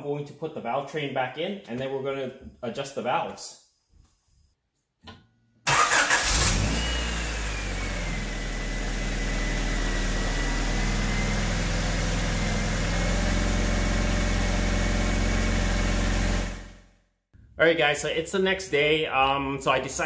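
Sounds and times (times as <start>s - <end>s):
car engine starting and idling: 5.7s - 16.8s.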